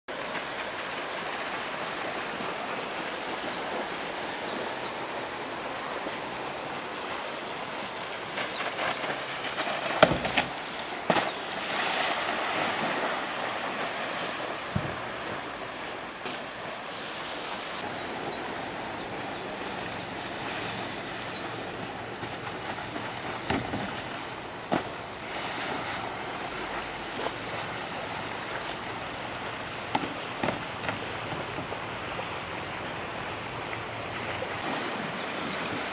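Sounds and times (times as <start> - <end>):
wind: 0.0 - 35.9
rushing water: 0.1 - 35.9
sharp knocks: 29.9 - 31.7.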